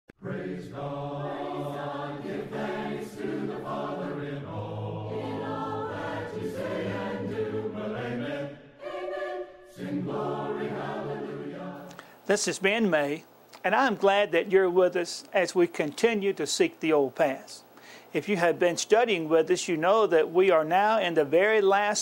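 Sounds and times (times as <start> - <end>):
choir singing a hymn: 0.2 - 11.9.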